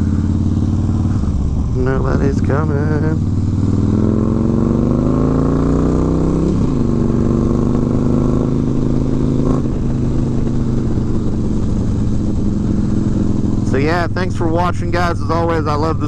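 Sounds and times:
motorcycle engine revving: 0:00.0 - 0:16.0.

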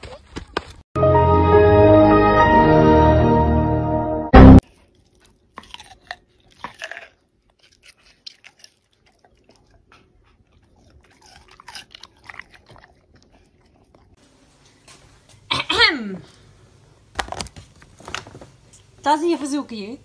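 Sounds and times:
animal chewing and crunching food: 0:04.6 - 0:15.1.

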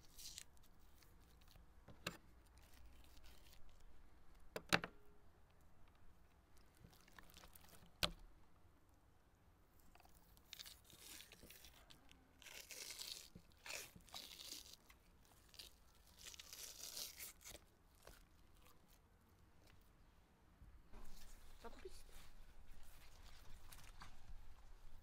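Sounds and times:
membrane peeling tearing rustles: 0:00.0 - 0:04.5, 0:06.2 - 0:08.2, 0:09.8 - 0:19.0, 0:21.0 - 0:25.0.

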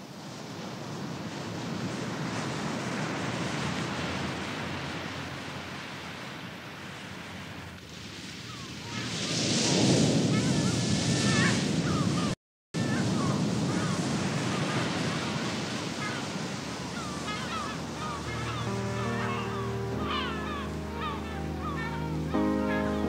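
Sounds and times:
ocean surf washing over rocks: 0:00.0 - 0:23.0
gulls calling: 0:10.3 - 0:23.0
music: 0:18.0 - 0:23.0.

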